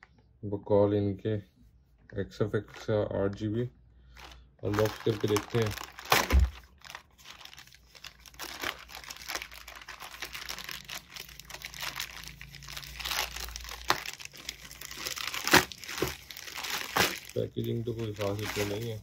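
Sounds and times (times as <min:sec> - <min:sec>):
plastic mailer bag crinkling: 0:04.1 - 0:19.0
plastic bag tearing: 0:04.2 - 0:19.0.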